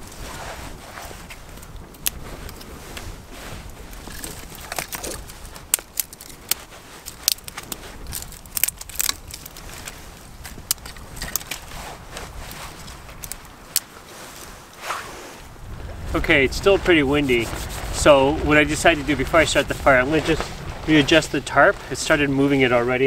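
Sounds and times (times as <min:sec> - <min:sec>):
soft rustle: 0:00.0 - 0:23.0
twigs snapping and cracking: 0:01.3 - 0:03.0, 0:03.9 - 0:14.8.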